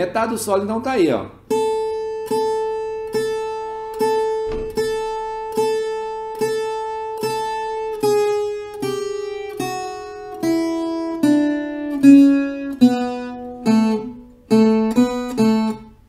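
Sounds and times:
plucked viola notes: 1.5s - 16.0s.

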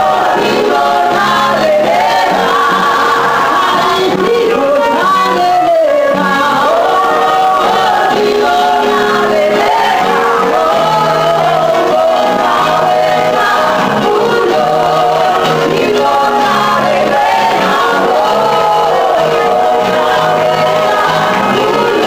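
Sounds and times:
choir singing: 0.0s - 22.0s.

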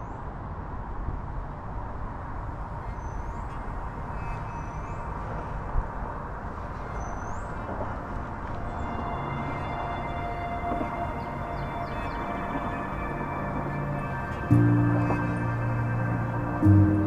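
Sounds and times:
outdoor background rumble: 2.2s - 17.0s.

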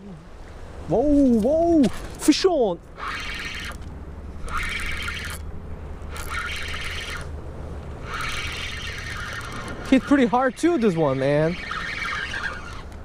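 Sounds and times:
fishing reel whirring: 3.0s - 5.5s, 6.1s - 7.3s, 8.0s - 13.0s.

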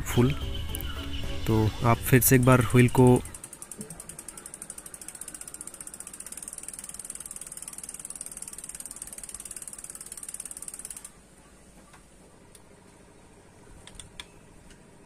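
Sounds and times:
bike freewheel ticking: 0.7s - 11.2s.

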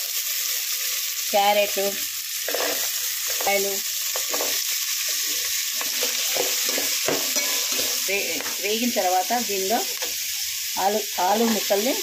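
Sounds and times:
vegetables sizzling in hot oil: 0.0s - 12.0s
metal spatula scraping pot: 2.4s - 8.8s.

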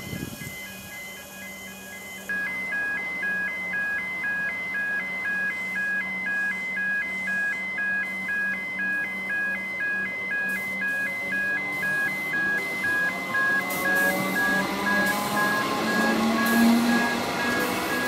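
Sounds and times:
level crossing two-tone alarm: 0.0s - 18.0s.

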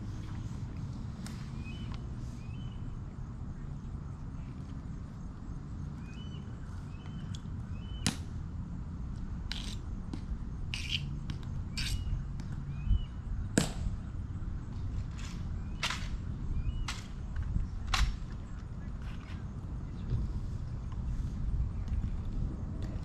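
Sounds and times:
bird chirps: 6.0s - 8.1s.

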